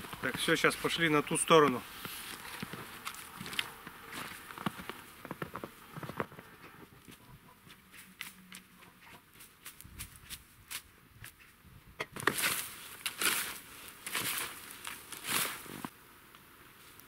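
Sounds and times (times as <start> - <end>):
footsteps crunching in snow: 0.0 - 11.5, 12.2 - 15.9
shovel crunching in snow: 0.2 - 4.9, 12.2 - 15.9.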